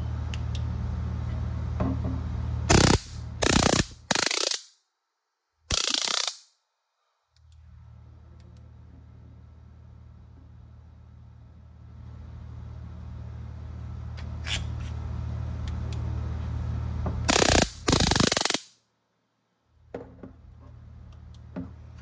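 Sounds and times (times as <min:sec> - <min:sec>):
stun baton electric arc crackling: 0:02.7 - 0:04.8, 0:05.7 - 0:06.6, 0:17.3 - 0:18.8.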